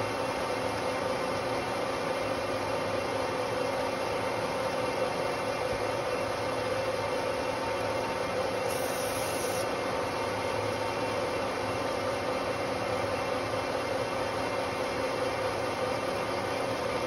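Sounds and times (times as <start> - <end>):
brief high hiss: 8.7 - 9.7.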